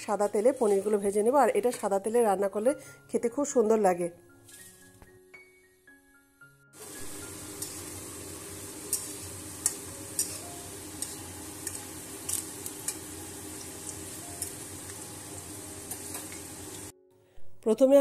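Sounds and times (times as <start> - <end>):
metal spatula scraping pan: 0.0 - 2.0, 8.8 - 13.0
potatoes sizzling in hot oil: 6.8 - 16.9.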